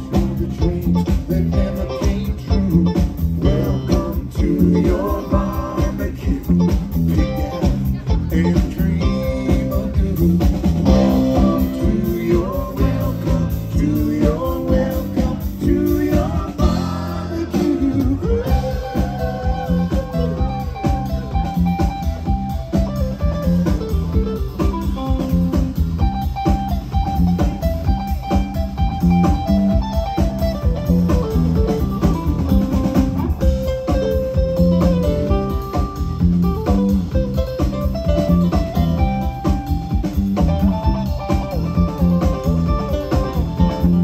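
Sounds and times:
electric guitar: 0.0s - 44.0s
low bass notes: 0.0s - 44.0s
steady drum beat: 0.0s - 44.0s.

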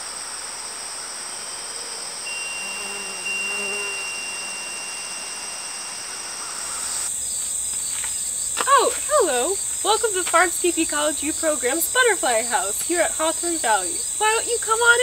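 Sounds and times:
insects singing: 0.0s - 15.0s
thin even tone: 2.3s - 7.1s.

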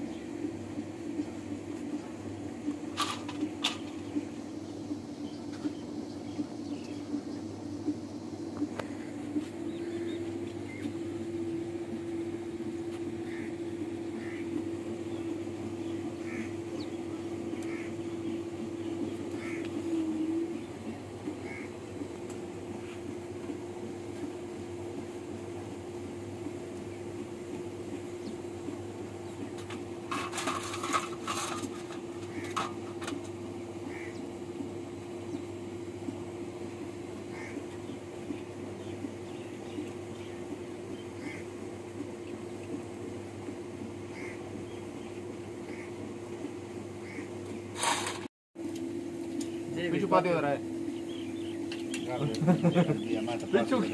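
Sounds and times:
steady low hum: 0.0s - 53.9s
bird calls: 3.0s - 23.6s, 27.8s - 36.2s, 36.8s - 42.9s, 43.9s - 47.8s, 50.6s - 53.9s.

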